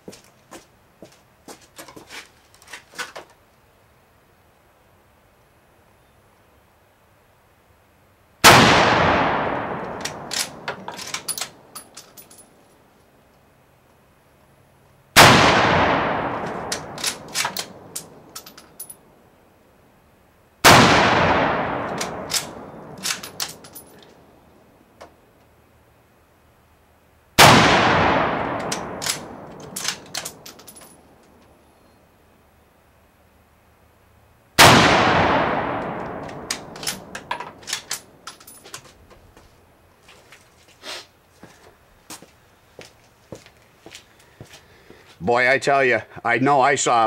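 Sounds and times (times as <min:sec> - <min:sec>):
rifle shots echoing: 0:08.4 - 0:11.7, 0:15.2 - 0:18.4, 0:20.6 - 0:23.8, 0:27.4 - 0:30.7, 0:34.6 - 0:38.2.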